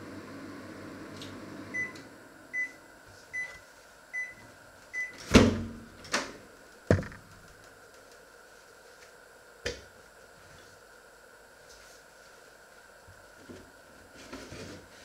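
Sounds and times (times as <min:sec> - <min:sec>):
microwave oven humming: 0:00.0 - 0:15.0
microwave beeps: 0:01.7 - 0:05.3.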